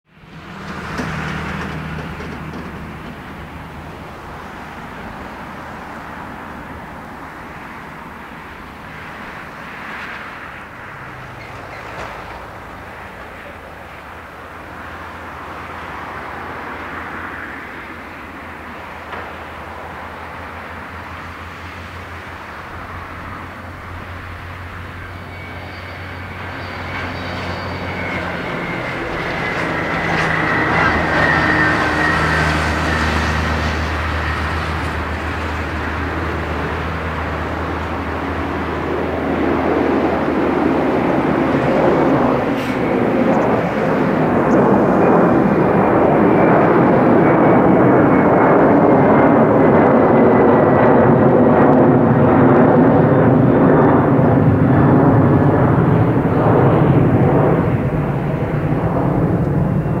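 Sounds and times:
jet airliner roar overhead: 0:00.0 - 1:00.0
whine sliding down in pitch: 0:23.1 - 0:35.2.

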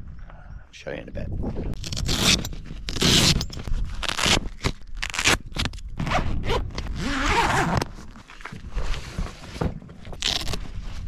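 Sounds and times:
wind rumble on microphone: 0:00.0 - 0:11.0
zip being pulled: 0:01.8 - 0:05.4, 0:06.0 - 0:07.9, 0:10.2 - 0:10.7.

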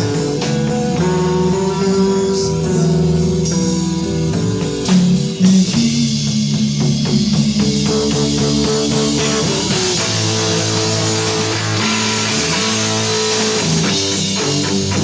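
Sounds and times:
rock band playing: 0:00.0 - 0:15.0
heavy drum hits: 0:03.4 - 0:15.0.

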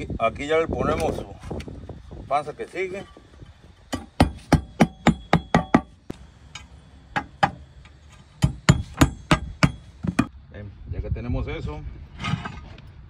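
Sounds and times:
hammer striking roof tiles: 0:03.9 - 0:06.0, 0:08.4 - 0:10.3.

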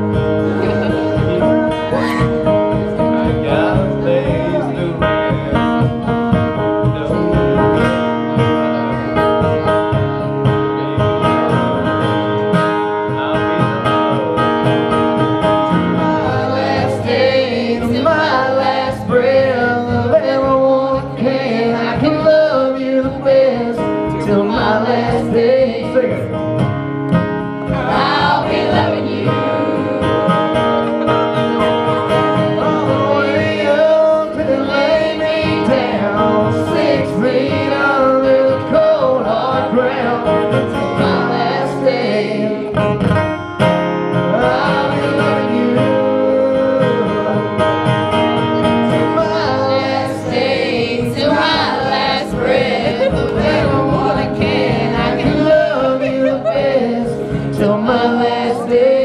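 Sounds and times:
strummed acoustic guitar: 0:00.0 - 0:59.0
two men singing: 0:15.7 - 0:26.4, 0:27.6 - 0:30.8, 0:32.1 - 0:43.0, 0:44.3 - 0:47.7, 0:48.9 - 0:59.0.

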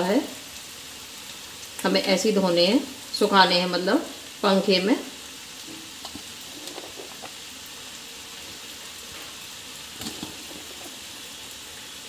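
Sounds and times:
food sizzling in oil: 0:00.0 - 0:12.0
faint crackles: 0:05.6 - 0:07.6, 0:09.1 - 0:11.6.

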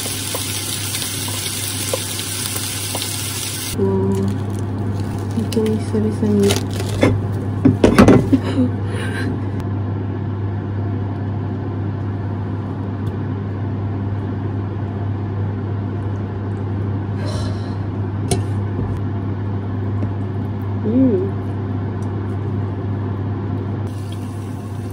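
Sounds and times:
kitchen appliance humming: 0:00.0 - 0:24.9.

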